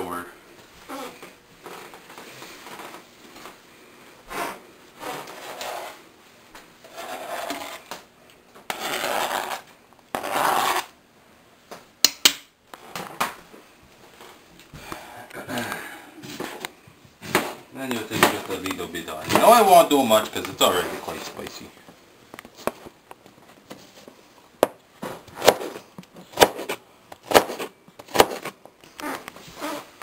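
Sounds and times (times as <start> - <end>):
scraping on cutting board: 4.3 - 6.0, 6.8 - 7.9, 8.7 - 10.9.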